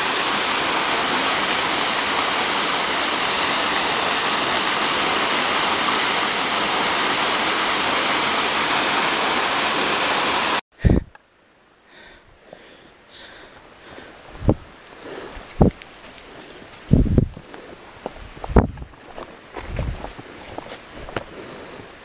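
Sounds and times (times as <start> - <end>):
waterfall rushing: 0.0 - 10.6.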